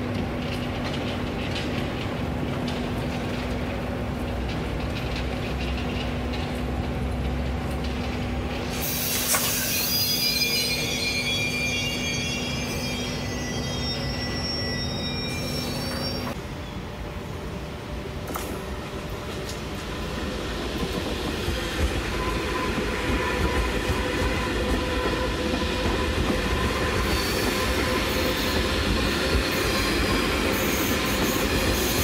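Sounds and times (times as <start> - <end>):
train coaches rumbling on rails: 0.0 - 32.0
train wheels squealing: 8.6 - 16.9, 20.8 - 32.0.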